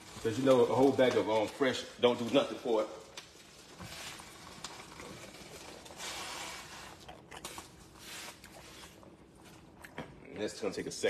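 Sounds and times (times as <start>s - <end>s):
soup simmering and bubbling: 0.0s - 11.0s.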